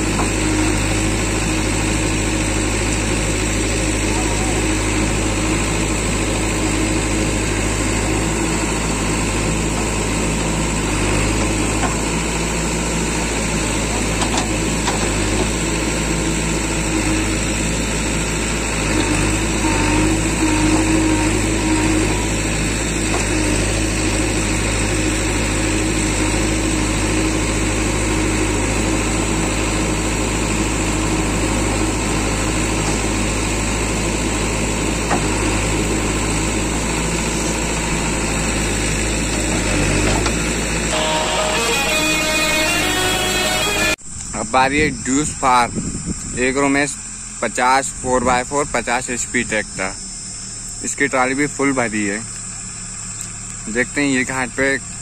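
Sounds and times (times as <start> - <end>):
diesel engine running: 0.0 - 55.0.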